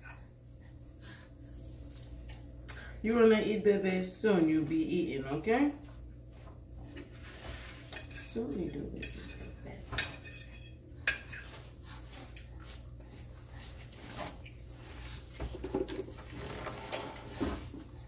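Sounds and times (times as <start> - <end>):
metal fork clinking on a plate: 9.0 - 11.5.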